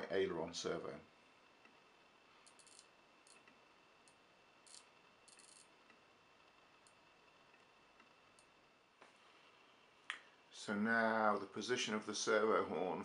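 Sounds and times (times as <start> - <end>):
low hiss: 0.0 - 13.0.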